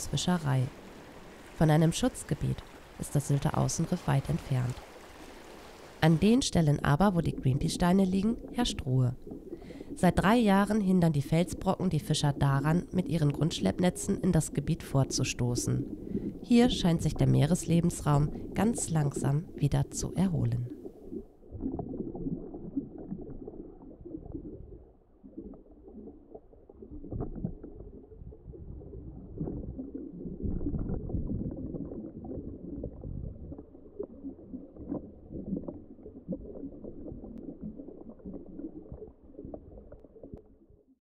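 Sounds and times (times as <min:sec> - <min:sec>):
underwater rumbling wash: 0:00.0 - 0:13.7, 0:15.0 - 0:20.0, 0:20.7 - 0:40.4
bubbling: 0:00.0 - 0:40.8
faint crackles: 0:00.7 - 0:13.6.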